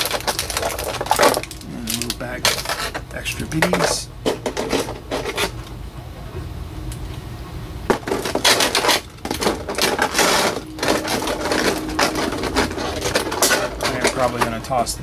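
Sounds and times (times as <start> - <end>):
plastic packaging crinkling: 0.0 - 5.5, 7.9 - 14.6.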